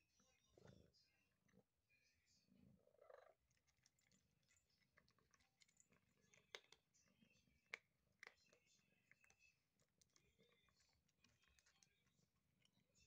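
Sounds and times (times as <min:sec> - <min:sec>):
kitten chewing dry kibble: 0:03.1 - 0:13.0.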